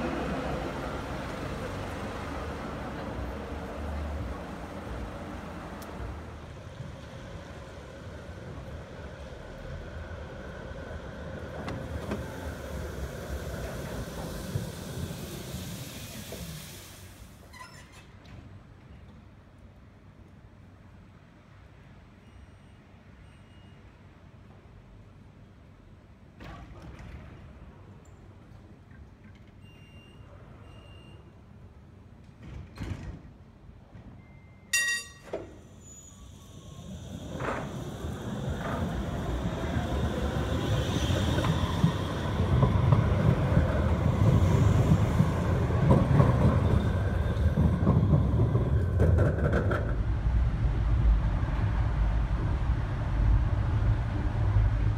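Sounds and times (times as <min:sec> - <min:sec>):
tram brakes whining: 0:00.0 - 0:18.0, 0:34.2 - 0:54.9
tram wheels rumbling on rail: 0:00.0 - 0:19.3, 0:34.8 - 0:54.9
faint short beeps: 0:22.2 - 0:23.9, 0:29.6 - 0:31.4, 0:34.2 - 0:35.4
loud ringing chime: 0:34.8 - 0:35.4.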